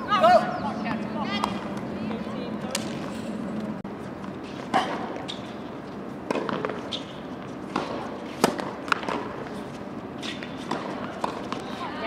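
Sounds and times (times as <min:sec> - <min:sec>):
tennis ball bouncing on court: 0:00.9 - 0:03.1, 0:06.2 - 0:09.6, 0:10.2 - 0:12.0
tennis ball hit by rackets: 0:04.5 - 0:05.5, 0:06.2 - 0:09.6, 0:10.2 - 0:11.8.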